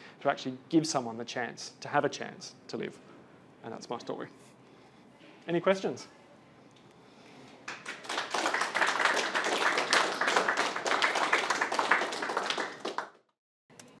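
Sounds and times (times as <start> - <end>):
audience applauding: 7.7 - 13.2.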